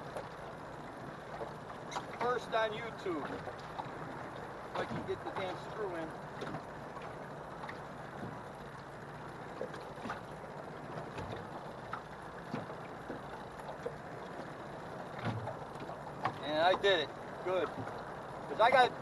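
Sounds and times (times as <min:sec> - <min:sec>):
water lapping against boat hull: 0:00.0 - 0:19.0.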